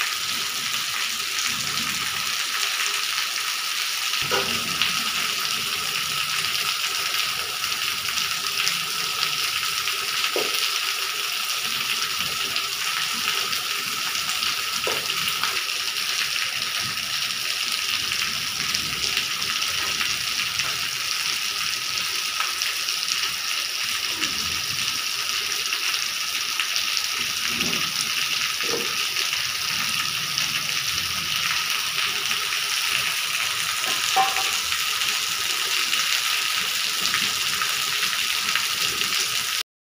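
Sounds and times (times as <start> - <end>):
rainwater pouring and splashing: 0.0 - 39.6
steady rain falling: 0.0 - 39.6.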